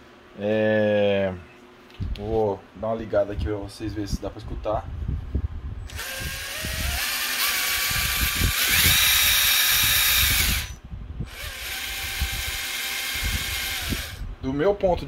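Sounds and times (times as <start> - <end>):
electric motor and gearbox whine: 5.8 - 14.3.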